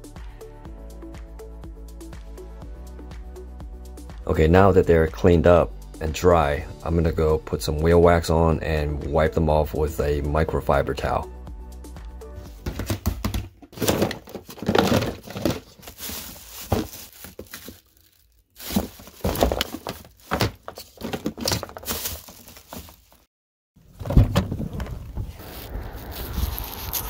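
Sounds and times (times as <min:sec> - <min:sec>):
plastic bottles knocking and crinkling: 0:12.5 - 0:23.3
low rumbling noise: 0:24.3 - 0:27.0.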